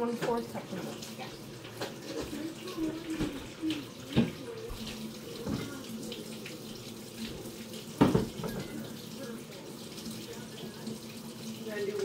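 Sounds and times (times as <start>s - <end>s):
liquid running: 0.0s - 12.0s.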